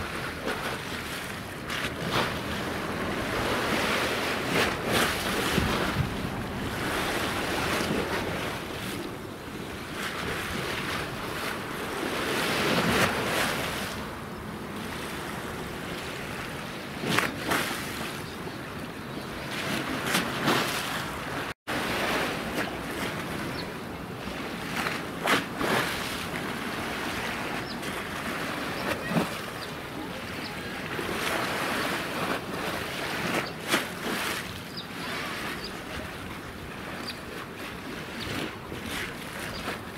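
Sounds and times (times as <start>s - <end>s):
wind buffeting microphone: 0.0s - 20.7s
choppy sea water: 0.0s - 39.9s.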